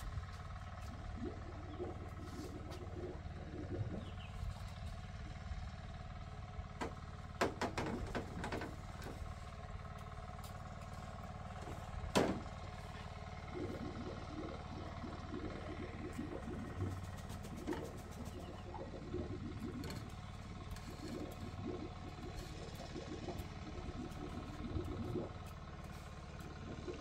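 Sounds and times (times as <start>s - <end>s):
steady low hum: 0.0s - 27.0s
knocks and clatter: 6.8s - 9.2s.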